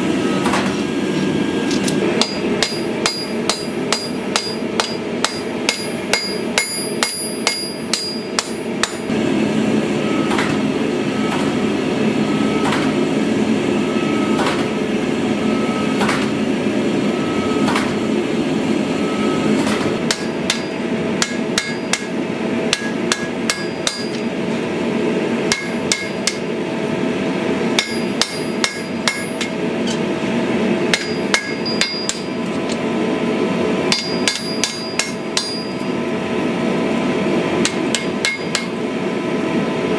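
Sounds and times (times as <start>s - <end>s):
gas forge roaring: 0.0s - 39.9s
forging machine striking: 0.2s - 0.9s, 1.6s - 9.2s, 10.0s - 11.7s, 12.3s - 13.1s, 13.9s - 14.9s, 15.6s - 16.4s, 17.2s - 18.1s, 19.1s - 24.4s, 25.4s - 26.6s, 27.6s - 30.1s, 30.8s - 32.8s, 33.8s - 36.1s, 37.6s - 38.8s
hammer blows on anvil: 2.2s - 9.1s, 19.6s - 24.3s, 27.8s - 29.6s, 30.9s - 32.4s, 33.9s - 35.9s.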